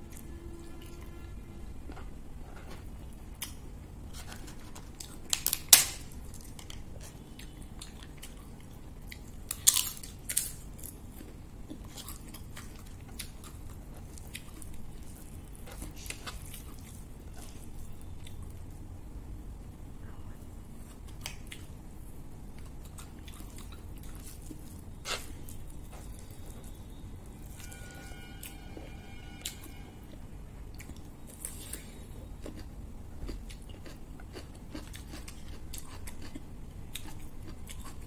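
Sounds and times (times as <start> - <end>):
close chewing: 30.7 - 38.0.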